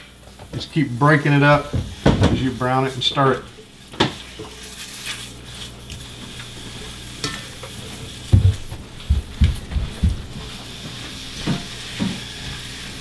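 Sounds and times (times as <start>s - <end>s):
sausage sizzling in a skillet: 0.0s - 13.0s
dull knocks: 8.3s - 10.3s.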